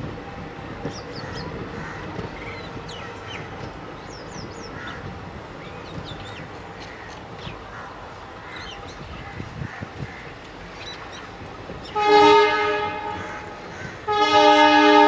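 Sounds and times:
train wheels rumbling on rails: 0.0 - 15.0
birds chirping: 0.8 - 9.4.

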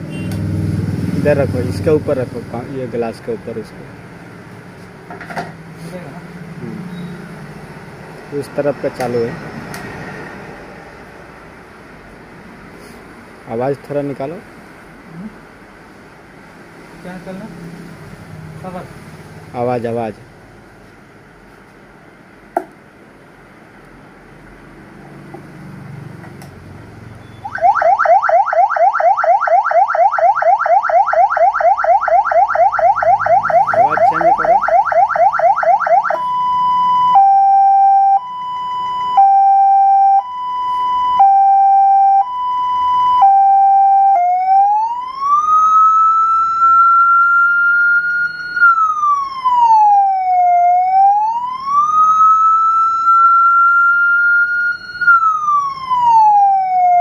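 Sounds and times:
two-tone siren: 27.0 - 57.0
electronic siren yelp: 27.1 - 57.0
siren wail: 27.4 - 57.0.

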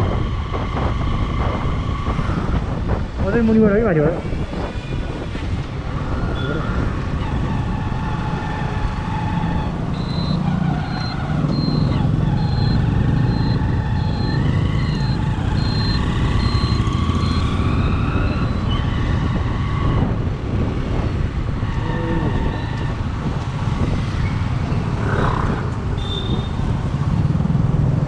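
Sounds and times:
vehicle engine and road noise: 0.0 - 28.0
short high beeps: 10.0 - 17.4.

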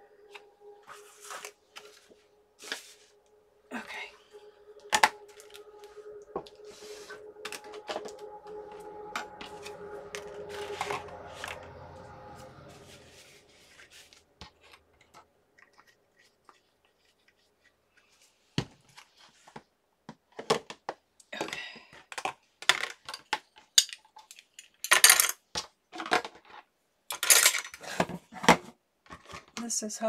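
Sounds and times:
small tools clattering into plastic tray: 21.4 - 29.6.

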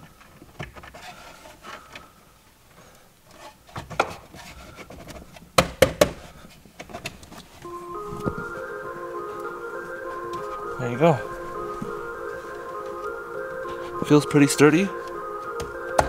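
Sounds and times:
music: 7.6 - 16.0.

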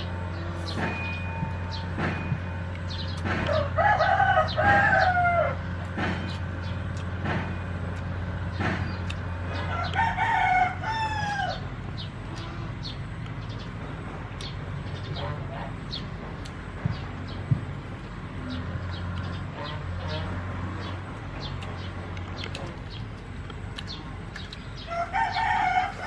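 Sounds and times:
rooster crowing: 3.4 - 5.7, 9.6 - 11.7, 24.9 - 26.0.

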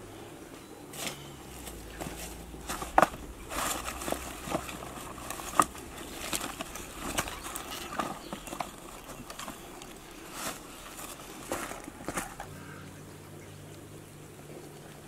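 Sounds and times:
dry leaves rustling: 0.0 - 15.0
firewood knocking together: 2.0 - 10.0.

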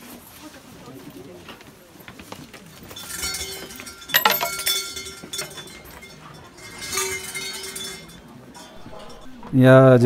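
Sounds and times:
coins clinking into wooden box: 3.0 - 9.5.

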